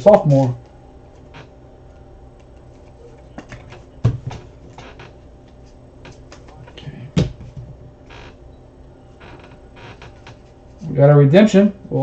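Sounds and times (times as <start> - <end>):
dull knocks: 3.4 - 4.9, 7.2 - 8.0.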